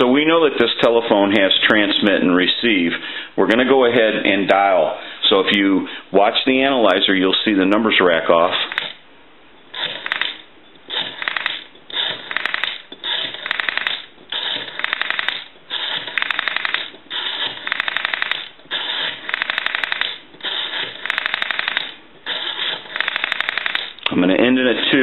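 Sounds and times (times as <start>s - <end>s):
rotary dial being wound: 8.7s - 9.0s, 9.8s - 24.1s
rotary dial pulse clicks: 8.7s - 9.0s, 9.7s - 24.1s.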